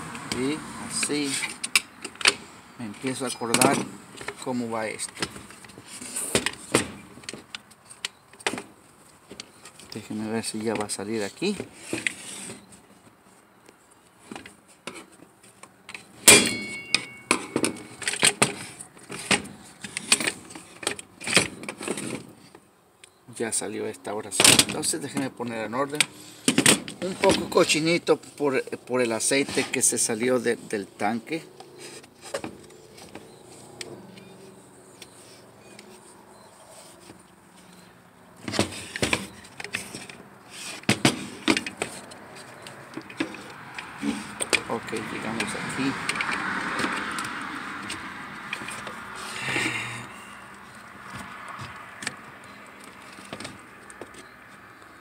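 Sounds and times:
sharp clack with metallic ring: 0:16.3 - 0:17.6.

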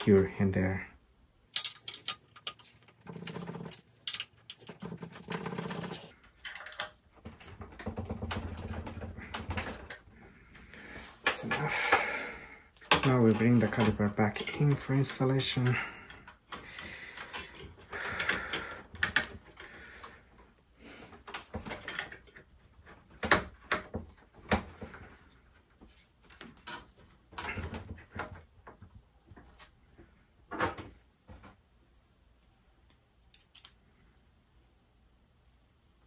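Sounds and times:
metal parts clicking and rattling: 0:01.5 - 0:12.0, 0:12.8 - 0:20.2, 0:24.8 - 0:28.4, 0:32.9 - 0:33.9.

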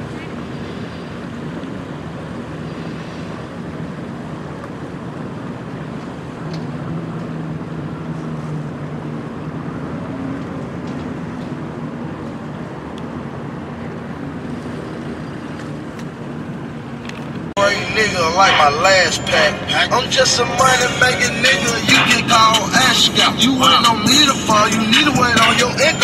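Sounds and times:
engine humming: 0:00.0 - 0:26.0
rushing noise: 0:17.5 - 0:26.0.

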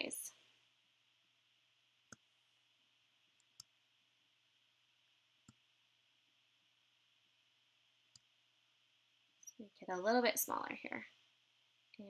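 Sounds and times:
computer mouse clicks: 0:02.1 - 0:02.3, 0:03.4 - 0:03.7, 0:05.4 - 0:05.6.

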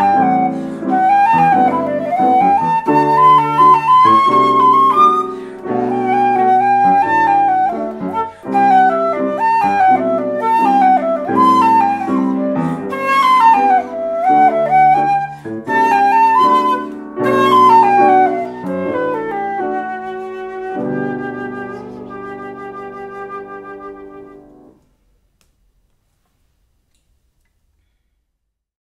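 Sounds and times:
flute melody: 0:00.0 - 0:24.8
piano chords: 0:00.0 - 0:24.8.

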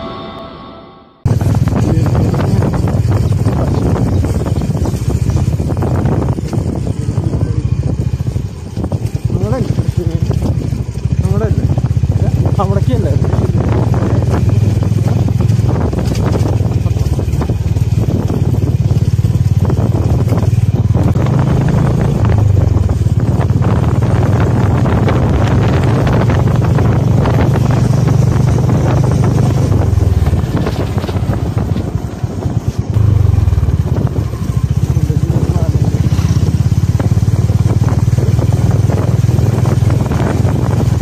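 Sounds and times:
vehicle engine running: 0:01.2 - 0:41.0
wind noise on microphone: 0:01.2 - 0:41.0.

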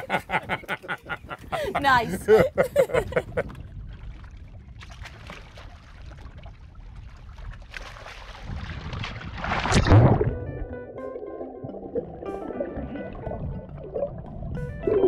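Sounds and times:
wind: 0:00.0 - 0:10.4
person splashing into the sea: 0:04.7 - 0:06.5, 0:07.4 - 0:10.6
music: 0:10.0 - 0:15.0.

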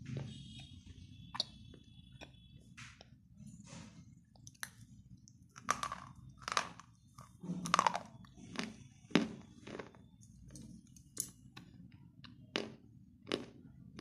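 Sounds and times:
slate pencils crunching when chewed: 0:04.4 - 0:14.0.

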